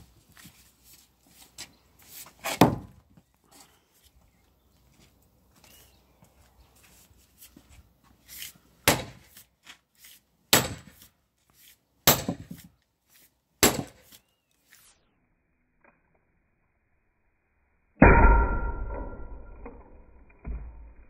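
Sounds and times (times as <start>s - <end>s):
sledgehammer striking metal maul: 8.8s - 9.2s, 10.5s - 11.0s, 12.1s - 12.5s, 13.6s - 14.0s, 18.0s - 21.0s.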